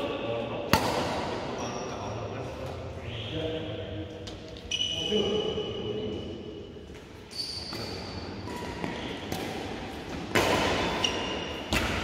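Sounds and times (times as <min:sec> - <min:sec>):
rackets striking shuttlecock: 0:00.7 - 0:01.4, 0:07.7 - 0:12.0.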